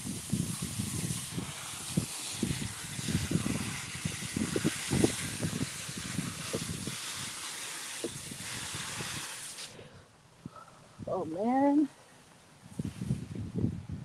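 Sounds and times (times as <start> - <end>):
hose water spraying onto soil: 0.0 - 9.9, 12.6 - 13.5.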